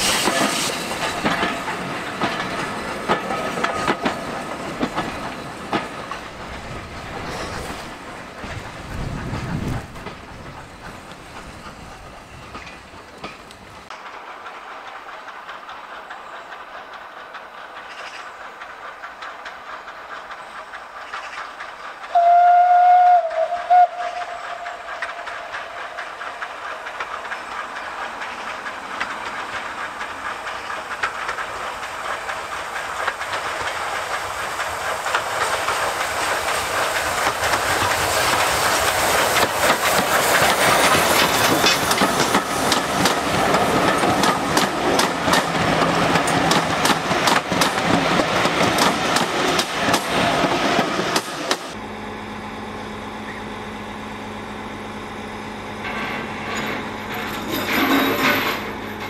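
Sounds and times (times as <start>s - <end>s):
train wheel clatter: 0.0s - 51.9s, 52.8s - 59.0s
steam locomotive whistle: 22.1s - 25.8s
steam exhaust: 22.1s - 27.1s.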